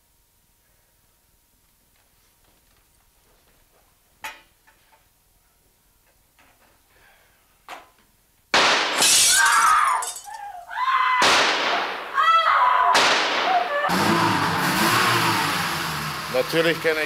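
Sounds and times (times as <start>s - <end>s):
gunshots: 8.6s - 9.1s, 11.2s - 12.2s, 12.9s - 13.6s
glass breaking: 8.6s - 10.4s
high wavering cry: 9.2s - 11.2s.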